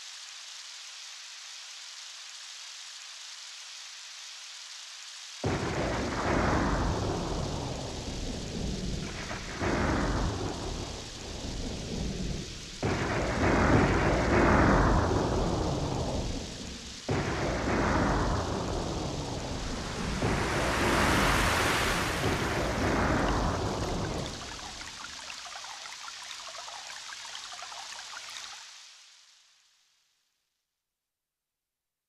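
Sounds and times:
heavy rain: 0.0s - 29.6s
thunder claps rumbling: 5.4s - 25.5s.

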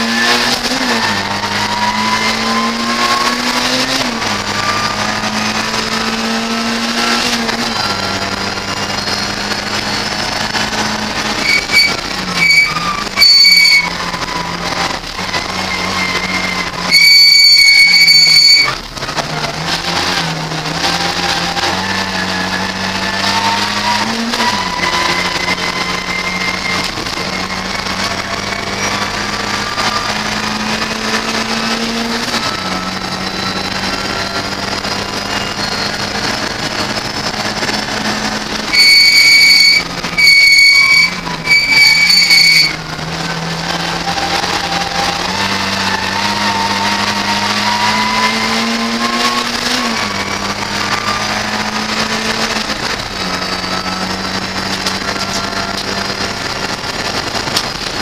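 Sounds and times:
high-pitched electronic tones: 0.0s - 18.8s, 20.8s - 52.6s
race car engine accelerating: 0.0s - 58.0s.

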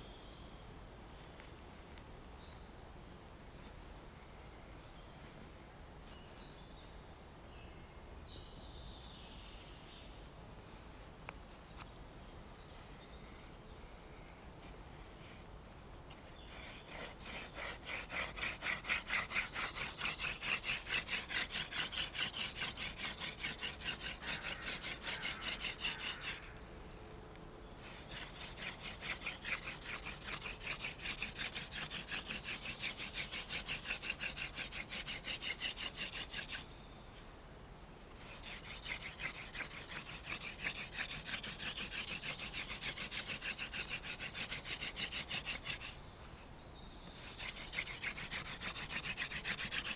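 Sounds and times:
wooden spindle scraping on wood: 16.1s - 26.6s, 27.8s - 36.7s, 38.1s - 46.0s, 47.2s - 49.9s.

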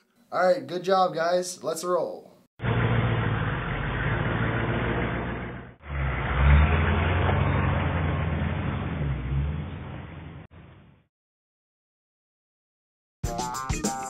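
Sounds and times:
truck engine revving: 2.6s - 10.8s.

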